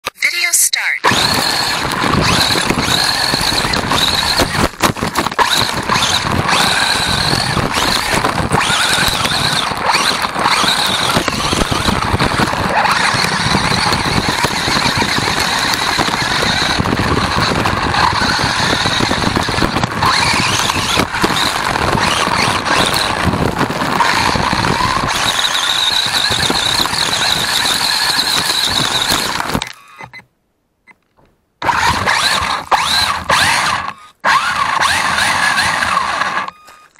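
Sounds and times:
electric toy car whining: 1.0 - 30.2, 31.6 - 36.9
tyres crunching on gravel: 1.1 - 29.8.

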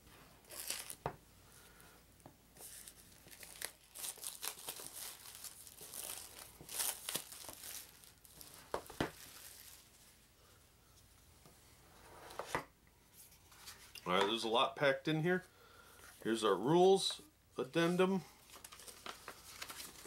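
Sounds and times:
plastic shrink-wrap crinkling: 0.4 - 1.1, 2.6 - 10.2, 18.4 - 20.0.

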